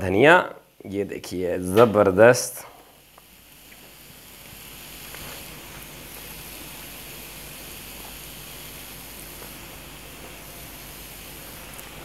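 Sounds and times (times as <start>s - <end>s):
chicken sizzling on a griddle: 2.8s - 12.0s.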